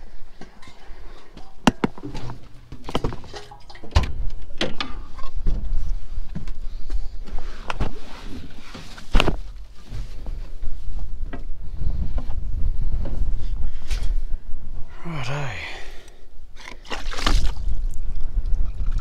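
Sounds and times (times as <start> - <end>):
metal latch clicks and clunks: 1.4 - 5.4
wind buffeting microphone: 11.2 - 14.8.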